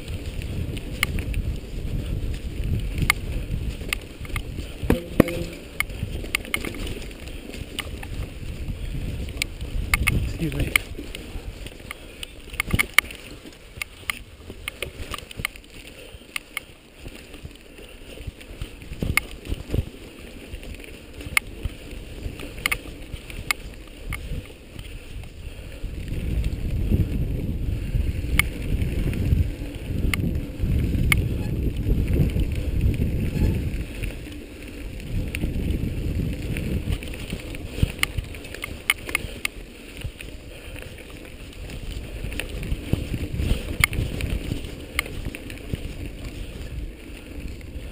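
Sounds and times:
bike rattling and clicking: 0.0s - 47.9s.

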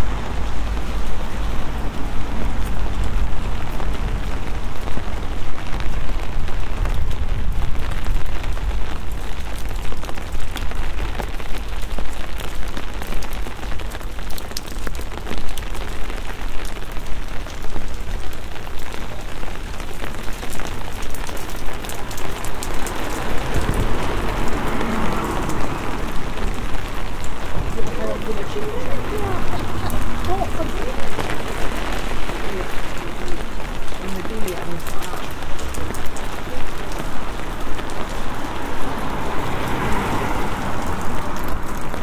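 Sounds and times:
rain on wet street: 0.0s - 42.0s
low rumble: 21.5s - 33.8s.

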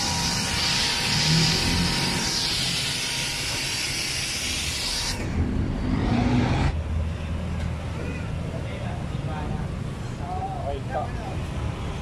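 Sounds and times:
pressure washer spraying water: 0.0s - 5.2s.

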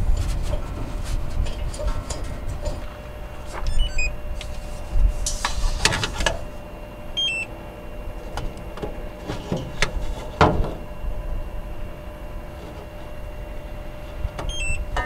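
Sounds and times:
short electronic chirps: 3.7s - 4.1s.

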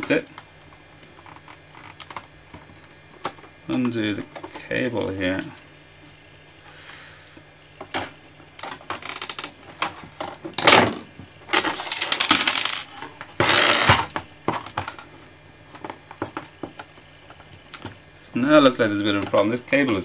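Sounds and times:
plastic scraping rasps: 13.4s - 14.0s.

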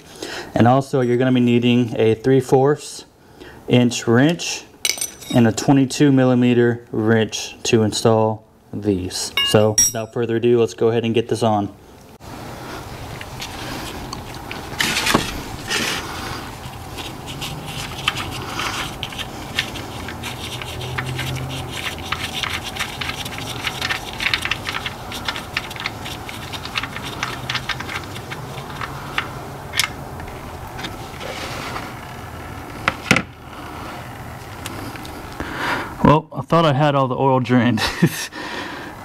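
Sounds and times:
rubbing and scraping: 13.3s - 29.3s.

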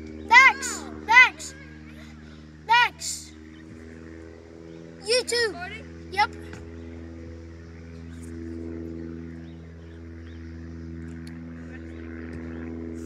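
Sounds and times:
distant children's voices: 0.0s - 3.4s.

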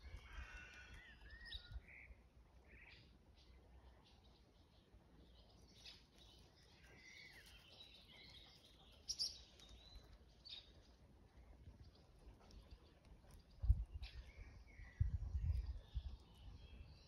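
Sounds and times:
faint bird chirps: 0.4s - 10.7s.

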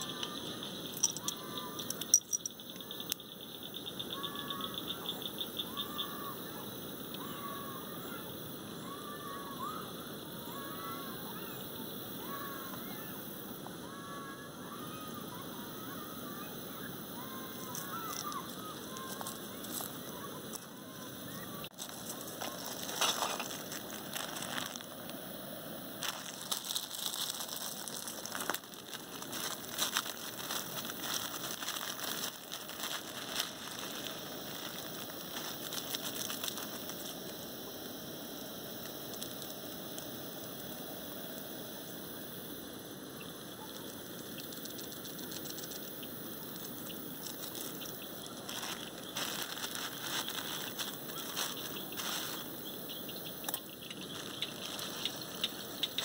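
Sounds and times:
plastic packet crinkling: 0.0s - 2.5s, 17.4s - 20.7s, 21.6s - 25.2s, 26.0s - 37.3s, 47.2s - 52.6s, 53.5s - 56.0s.

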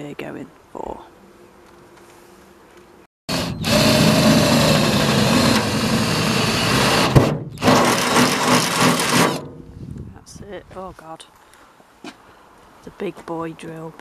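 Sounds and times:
cordless drill boring through metal: 3.3s - 9.4s.

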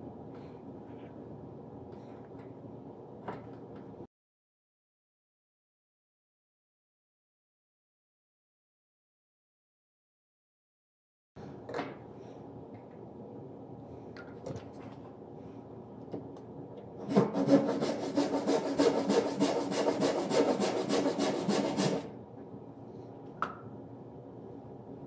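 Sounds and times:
hand tool rasping on wood: 17.1s - 22.0s.

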